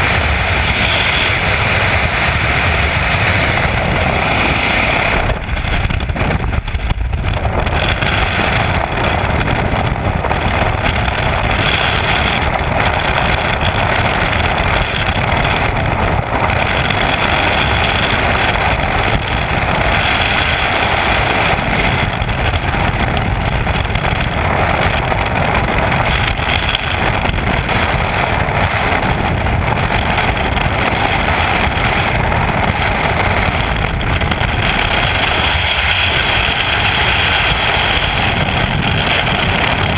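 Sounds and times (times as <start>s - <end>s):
wind blasting over microphone: 0.0s - 39.9s.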